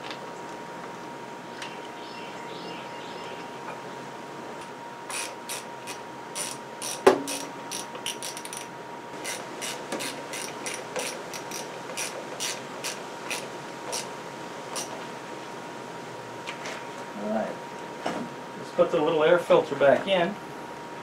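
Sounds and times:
hand ratchet clicking: 0:05.1 - 0:14.1.

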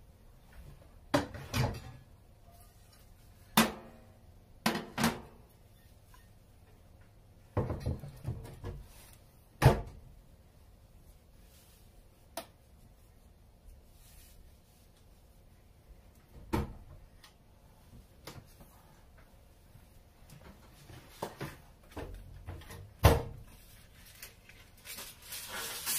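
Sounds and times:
dishes and cookware clattering: 0:01.2 - 0:02.1.

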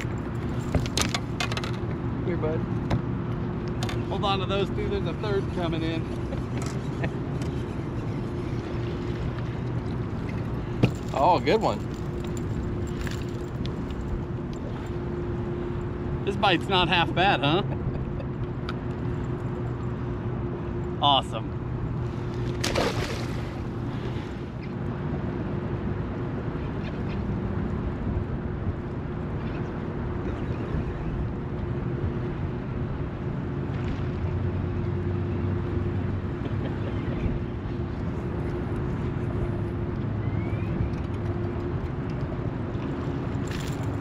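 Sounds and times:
wind: 0:00.0 - 0:44.0
moving water: 0:04.0 - 0:16.9, 0:21.8 - 0:24.7, 0:33.5 - 0:44.0
fish splashing into water: 0:22.5 - 0:23.7.

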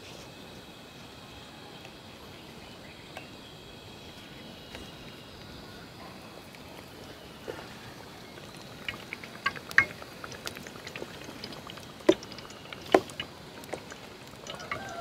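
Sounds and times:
deep-frying sizzle with pops: 0:06.4 - 0:15.0.

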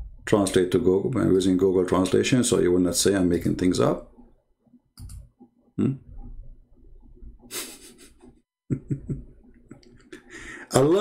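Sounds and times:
man breathing close to microphone: 0:10.2 - 0:10.7.

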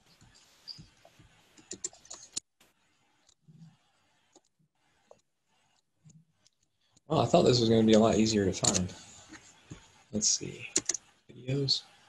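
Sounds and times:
keyboard typing: 0:01.6 - 0:02.4, 0:07.9 - 0:09.0, 0:10.7 - 0:11.0.

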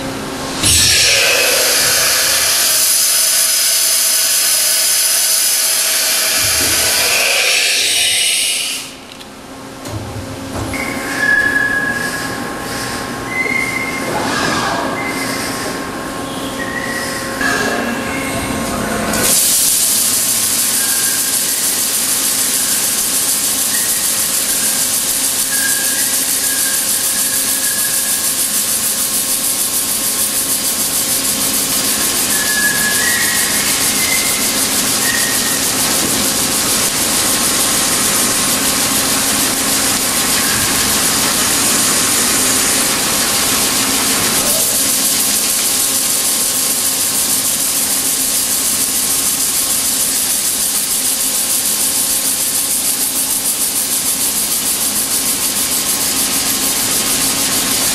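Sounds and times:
coolant spray hissing: 0:00.0 - 0:09.1, 0:19.2 - 0:57.9
metal cutting squeals: 0:00.6 - 0:09.0, 0:10.7 - 0:18.5, 0:20.4 - 0:21.8, 0:22.4 - 0:29.0, 0:31.4 - 0:36.9, 0:37.7 - 0:43.5.

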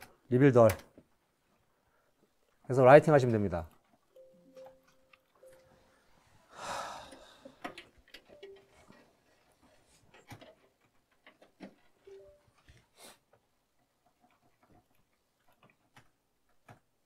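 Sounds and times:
breathy rush: 0:05.8 - 0:07.7.

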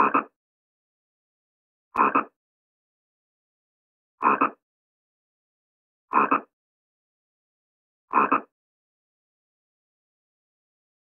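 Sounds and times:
frog croaking: 0:00.0 - 0:00.4, 0:02.0 - 0:02.4, 0:04.2 - 0:04.6, 0:06.1 - 0:06.6, 0:08.1 - 0:08.6.

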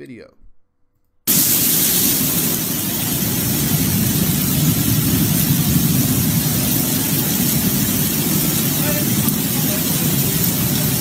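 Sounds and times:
floodwater rushing: 0:01.3 - 0:11.0.

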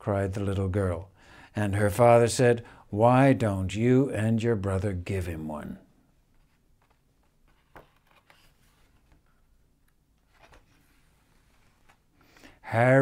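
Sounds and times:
page turning rustle and click: 0:06.3 - 0:12.1.

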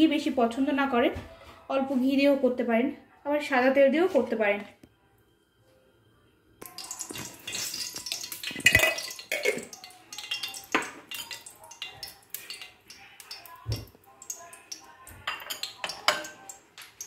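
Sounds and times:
utensil scraping and clinking bowl: 0:06.6 - 0:13.6, 0:15.2 - 0:17.0
utensil clatter: 0:06.6 - 0:14.4
ghee crackling in hot oil: 0:06.6 - 0:17.0.

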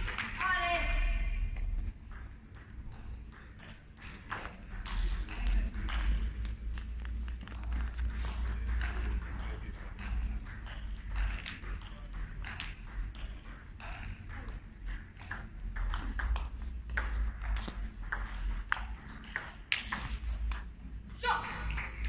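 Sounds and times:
table tennis ball clicks: 0:02.1 - 0:20.7.

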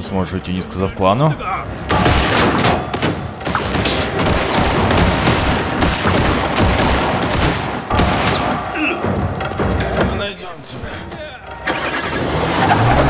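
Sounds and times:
pistols firing: 0:01.8 - 0:10.0.

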